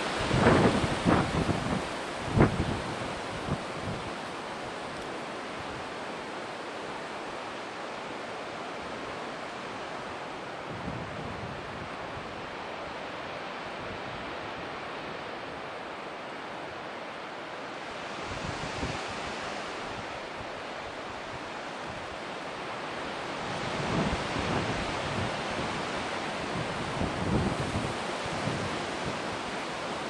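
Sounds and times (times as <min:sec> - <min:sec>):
wind on microphone: 0:00.0 - 0:06.0, 0:10.6 - 0:12.9, 0:18.1 - 0:22.2, 0:23.1 - 0:30.0
wind gusts buffeting microphone: 0:00.0 - 0:07.7, 0:08.4 - 0:30.0.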